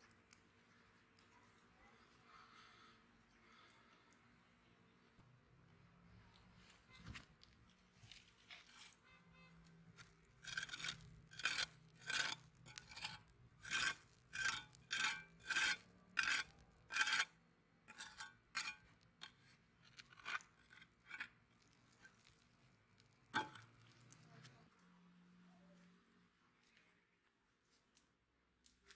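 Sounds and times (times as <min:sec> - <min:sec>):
trowel scraping through sand: 0:10.0 - 0:17.3, 0:17.9 - 0:19.4.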